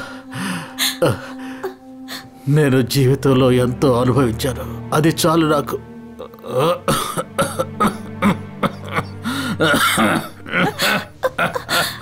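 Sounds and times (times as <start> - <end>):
soft background music: 0.0 - 12.0
person coughing and gasping: 6.4 - 12.0.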